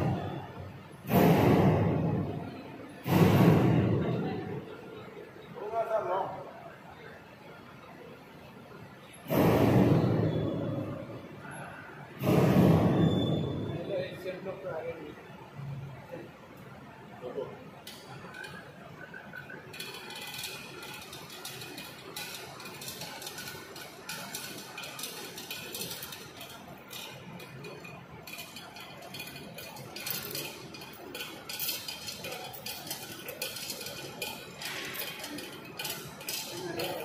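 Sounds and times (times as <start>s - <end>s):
metal clinking and rattling: 17.9s - 37.0s.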